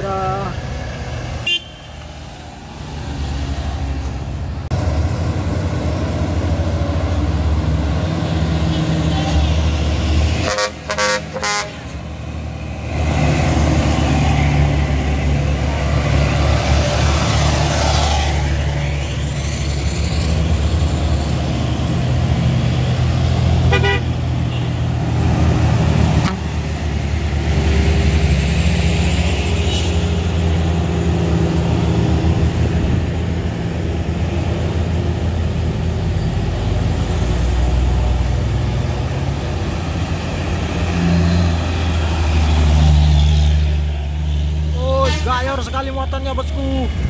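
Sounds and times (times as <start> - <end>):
truck and car engines pulling uphill: 0.0 - 47.0
tanker truck passing close: 2.0 - 47.0.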